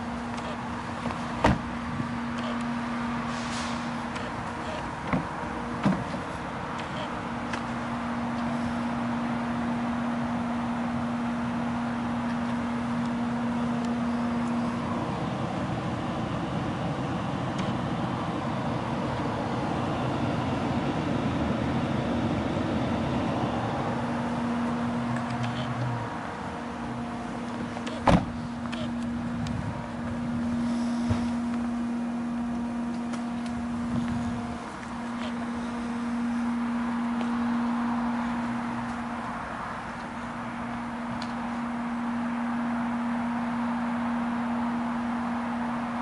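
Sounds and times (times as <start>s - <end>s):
parked car running noise: 0.0s - 46.0s
steady hum: 0.0s - 46.0s
car door shutting: 0.3s - 2.7s, 3.3s - 7.7s, 27.6s - 29.2s, 30.6s - 31.7s.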